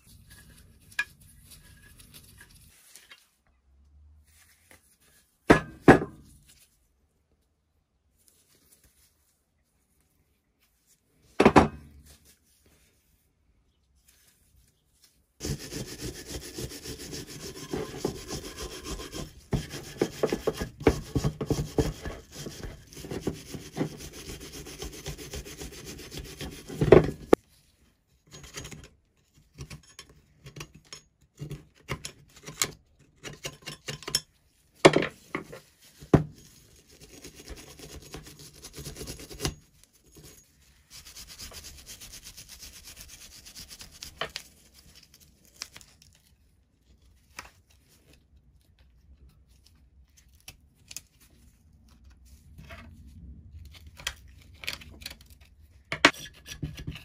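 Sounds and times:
metal scrapes and knocks: 15.4 - 24.0.

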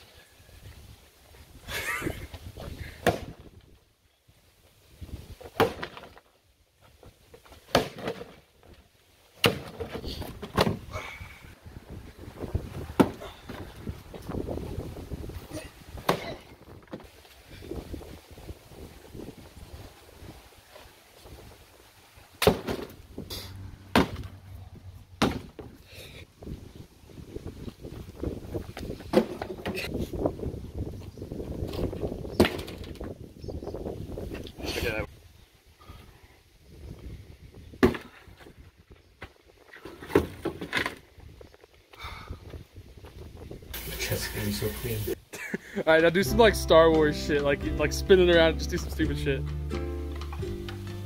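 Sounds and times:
whacks on a cardboard box: 3.0 - 3.4, 9.4 - 9.9, 23.9 - 24.3, 25.2 - 25.6.

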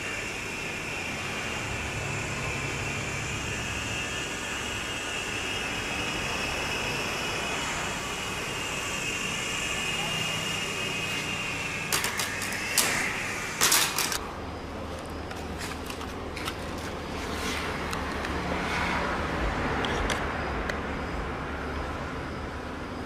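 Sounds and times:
small electric motor whining: 0.0 - 14.2.

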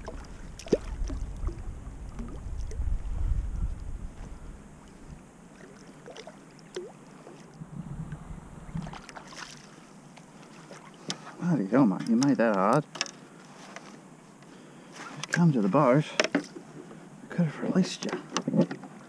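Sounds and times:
wind rumbling on microphone: 0.0 - 5.5, 7.5 - 9.3
light water splashes: 0.0 - 12.8.

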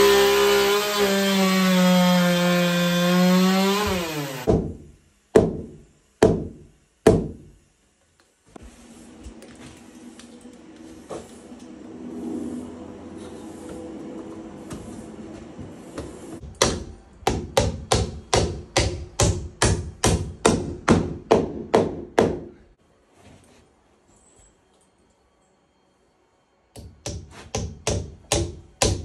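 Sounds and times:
hammer striking wood: 3.5 - 7.5, 16.4 - 22.6, 26.8 - 29.0.

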